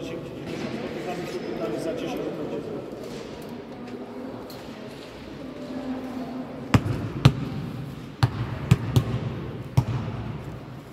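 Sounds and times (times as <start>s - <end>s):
ball bouncing on hard floor: 6.7s - 10.2s.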